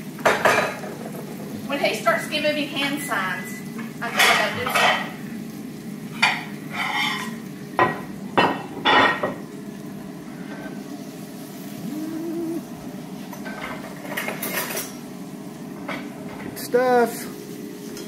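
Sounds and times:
low kitchen hum: 0.0s - 18.0s
pots and pans clattering: 0.1s - 1.7s, 3.8s - 5.2s, 6.1s - 9.5s, 13.2s - 15.0s
short low tone: 11.8s - 12.7s.

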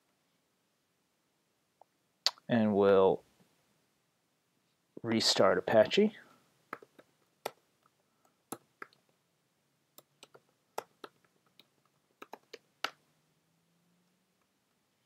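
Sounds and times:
keyboard typing clicks: 10.0s - 13.0s.

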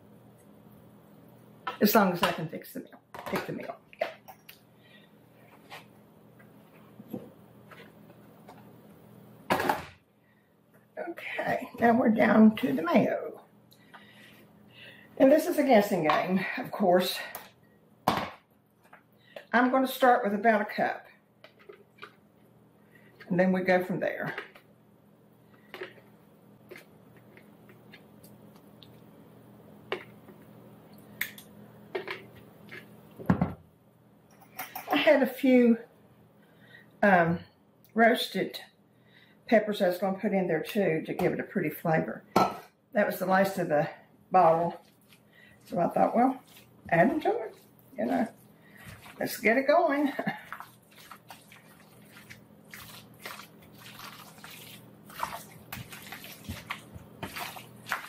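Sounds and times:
faint steady hum: 0.0s - 58.0s
spoon stirring wet potato salad: 44.4s - 58.0s.

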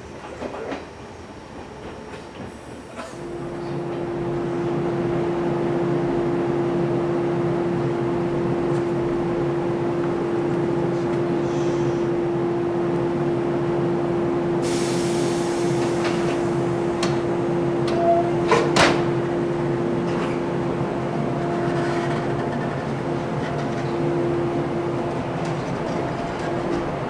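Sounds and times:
electric train humming: 1.0s - 27.0s
hiss of escaping air: 14.6s - 16.5s.

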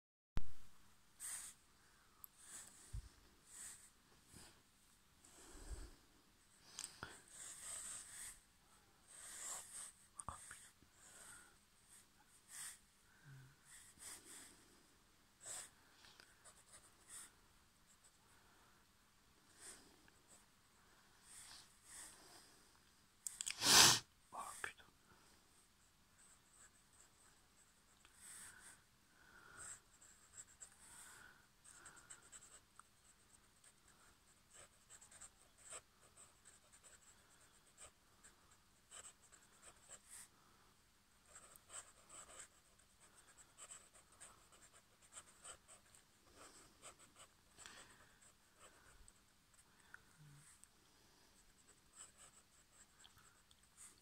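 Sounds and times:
pen scratching on paper: 7.0s - 8.4s, 9.0s - 12.8s, 15.4s - 15.8s, 29.6s - 38.0s, 38.8s - 40.3s, 41.2s - 48.9s, 51.4s - 54.0s.

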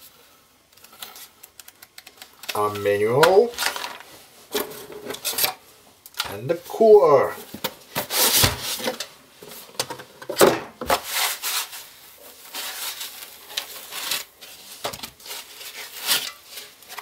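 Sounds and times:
foam packing blocks scraping: 7.9s - 9.0s, 10.8s - 17.0s.

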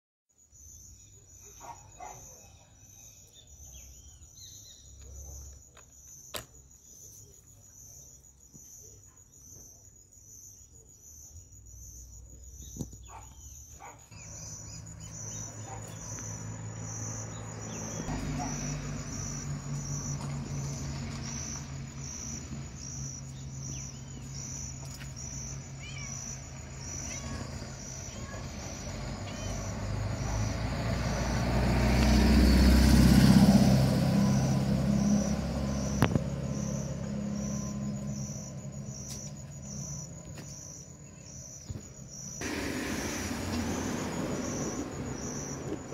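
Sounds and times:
insects chirping: 0.3s - 45.9s
bird chirps: 0.5s - 32.2s, 34.1s - 45.9s
hiss: 42.4s - 45.9s.

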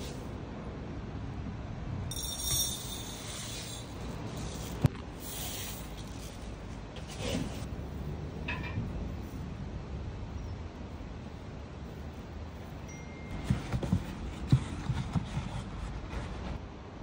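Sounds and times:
sharp clink: 2.1s - 3.9s.

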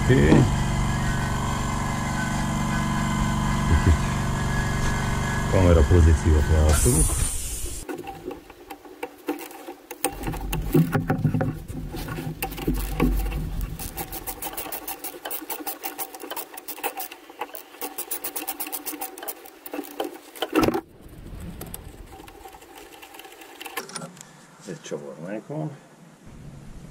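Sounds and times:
tool knocking against engine parts: 7.9s - 20.8s
ratchet wrench clicking: 12.4s - 20.6s.

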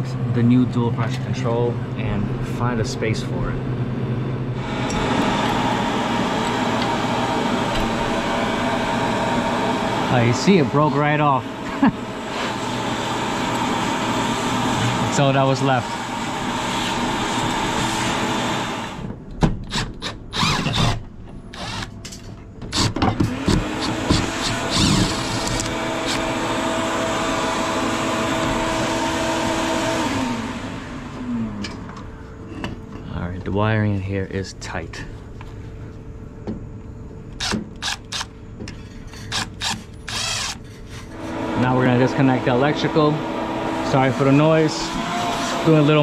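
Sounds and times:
steady machinery noise: 0.0s - 46.0s
cordless drill bursts: 19.7s - 22.0s, 22.7s - 30.6s, 37.4s - 38.3s, 39.3s - 40.6s, 43.7s - 46.0s.

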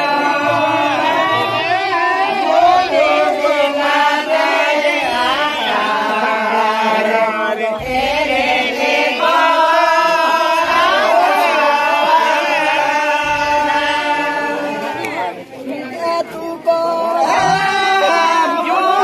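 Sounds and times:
men singing in unison: 0.0s - 19.0s.

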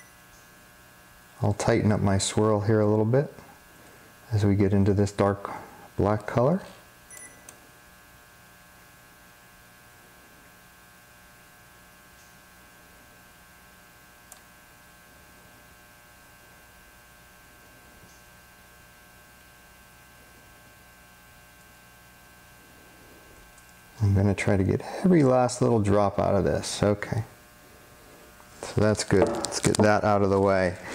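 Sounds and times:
thin high whine: 0.0s - 7.5s
faint electrical hum: 0.0s - 30.9s
small click: 14.3s - 14.5s, 18.0s - 18.3s.

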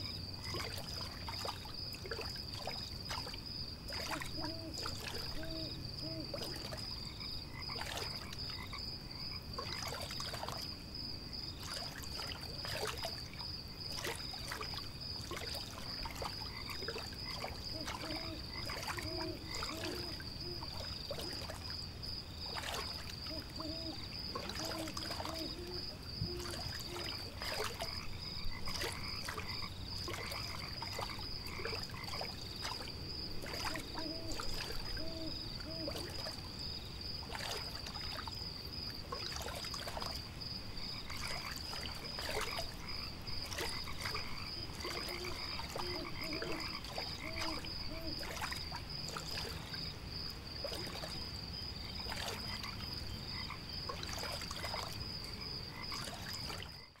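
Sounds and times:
frogs croaking: 0.0s - 57.0s
water splashes: 0.0s - 57.0s.

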